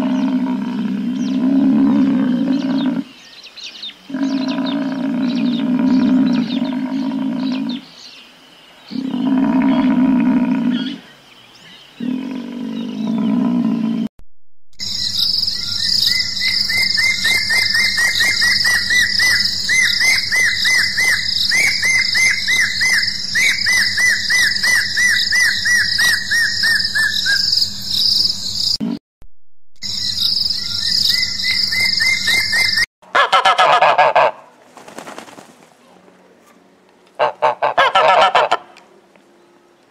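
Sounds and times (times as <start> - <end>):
buffalo moaning: 0.0 - 3.1, 4.1 - 7.9, 8.9 - 11.0, 12.0 - 14.1
bird piping whistles: 14.8 - 28.3, 29.8 - 32.8
geese honking: 33.1 - 34.5, 37.2 - 38.8.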